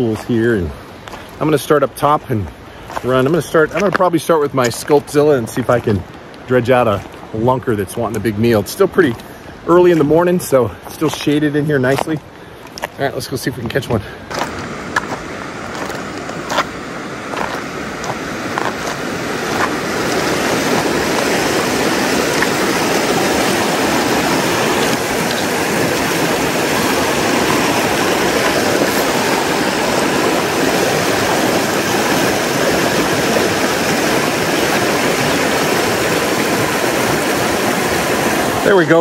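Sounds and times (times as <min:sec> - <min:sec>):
footsteps on gravel: 0:00.0 - 0:06.2, 0:08.9 - 0:31.7
whitewater rushing over rocks: 0:00.0 - 0:39.0.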